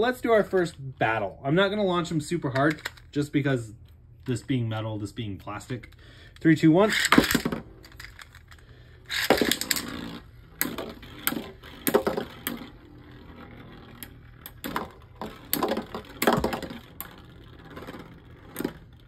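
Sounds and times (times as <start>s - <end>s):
spinning tops clacking together: 6.9s - 19.0s.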